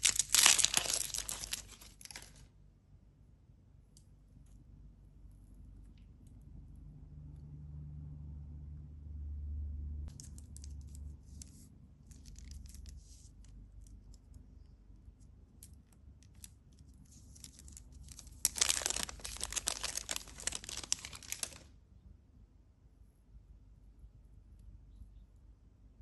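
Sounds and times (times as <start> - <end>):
wrapper crinkling: 0.0 - 2.5, 10.1 - 13.2, 16.3 - 21.7.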